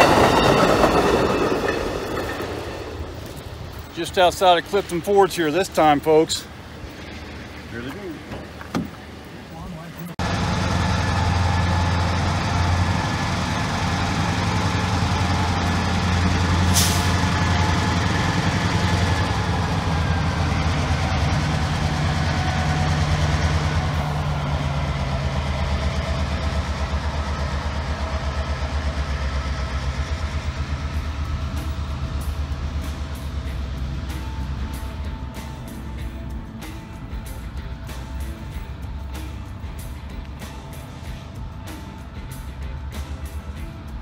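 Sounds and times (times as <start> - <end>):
wheels clicking over rail joints: 0.0 - 10.2
locomotive engines droning: 0.0 - 44.0.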